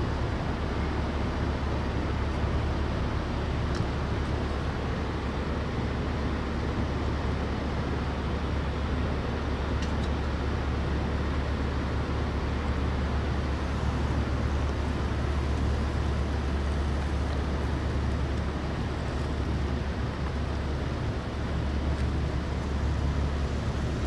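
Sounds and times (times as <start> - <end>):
ship engines rumbling: 0.0 - 24.0.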